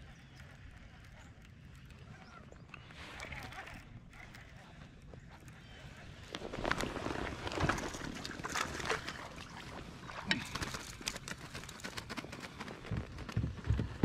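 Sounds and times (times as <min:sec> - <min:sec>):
clicks and knocks from fishing gear: 0:06.2 - 0:14.0.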